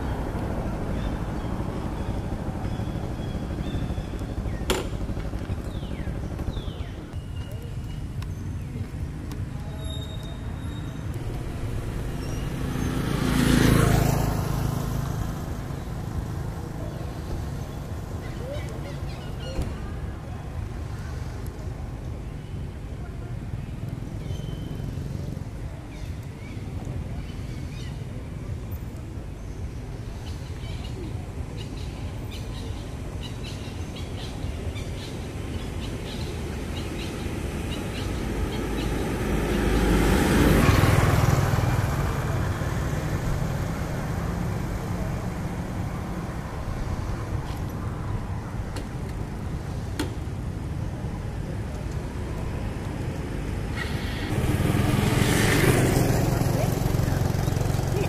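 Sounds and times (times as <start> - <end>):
vehicle passing by: 11.1 - 19.0, 35.8 - 49.9, 50.5 - 58.0.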